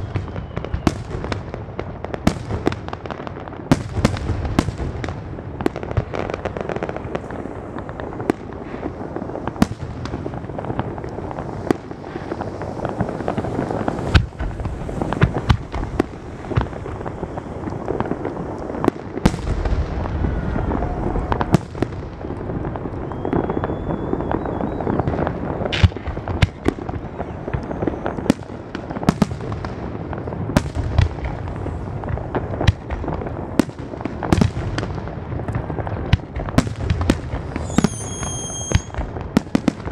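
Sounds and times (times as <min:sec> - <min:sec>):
faint rising whistle: 0:00.0 - 0:00.9, 0:23.0 - 0:25.4, 0:37.6 - 0:39.0
firework bangs: 0:00.0 - 0:39.9
firework crackling: 0:00.0 - 0:39.9.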